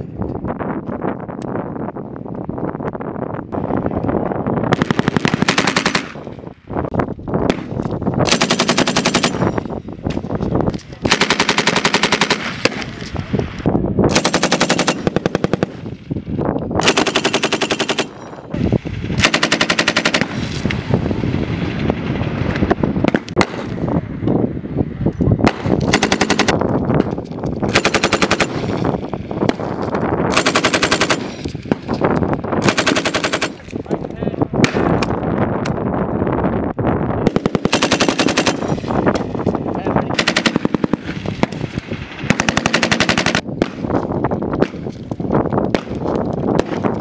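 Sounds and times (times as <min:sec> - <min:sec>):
machine gun automatic bursts: 0:04.8 - 0:06.2, 0:08.2 - 0:09.5, 0:11.0 - 0:12.8, 0:14.1 - 0:15.8, 0:16.8 - 0:18.2, 0:19.2 - 0:20.5, 0:25.8 - 0:26.6, 0:27.7 - 0:28.8, 0:30.3 - 0:31.4, 0:32.6 - 0:33.6, 0:37.3 - 0:38.9, 0:40.2 - 0:41.1, 0:42.3 - 0:43.4
gunshot echoes: 0:34.6 - 0:35.0.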